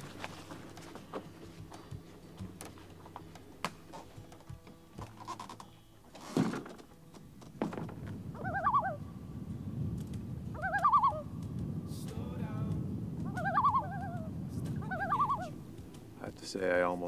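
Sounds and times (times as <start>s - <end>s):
footsteps on forest trail: 0.0s - 6.0s
loon tremolo call: 8.3s - 9.2s, 10.5s - 11.4s, 13.3s - 15.6s.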